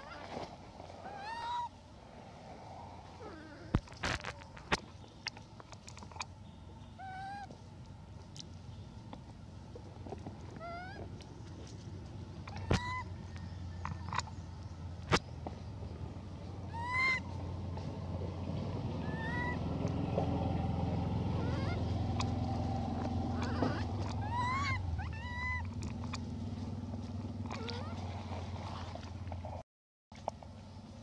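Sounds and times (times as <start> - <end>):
young monkey high calls: 1.0 - 1.8, 7.0 - 7.6, 10.6 - 11.1, 12.4 - 13.2, 16.7 - 17.4, 19.0 - 19.6, 21.3 - 22.3, 23.2 - 26.2, 27.5 - 28.1.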